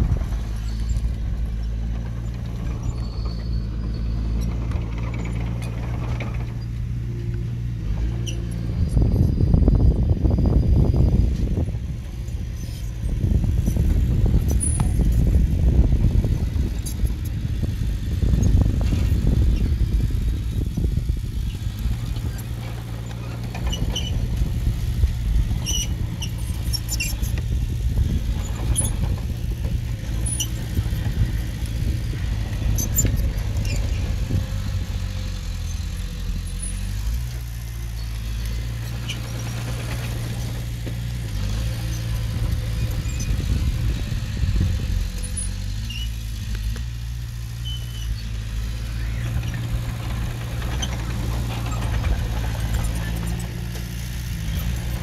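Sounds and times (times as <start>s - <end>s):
bulldozer diesel engine running: 0.0s - 55.0s
high squeaks: 47.6s - 48.3s.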